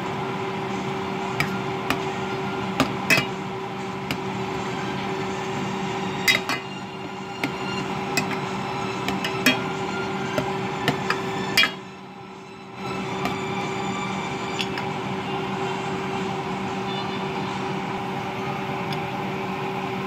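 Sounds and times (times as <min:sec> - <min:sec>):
steady hum: 0:00.0 - 0:20.0
metal spoon clinking on pot: 0:03.1 - 0:03.4, 0:06.2 - 0:06.8, 0:07.4 - 0:08.5, 0:09.1 - 0:09.8, 0:10.9 - 0:11.8.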